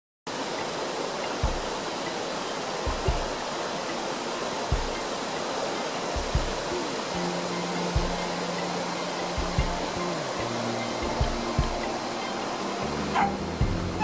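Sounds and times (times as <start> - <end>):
waterfall rushing: 0.3 - 14.0
low thumps on microphone: 2.9 - 3.4, 6.2 - 6.7, 8.0 - 8.3, 9.4 - 10.0.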